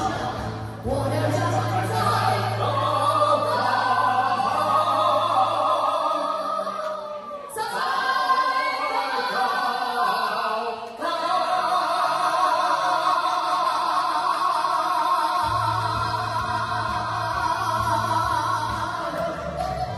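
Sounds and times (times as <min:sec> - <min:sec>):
backing track music: 0:00.0 - 0:05.6, 0:15.4 - 0:19.9
person singing: 0:00.0 - 0:19.9.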